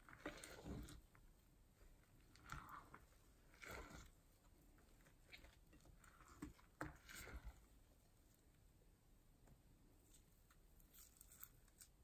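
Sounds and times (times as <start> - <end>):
slime squishing in a glass bowl: 0.0 - 7.8.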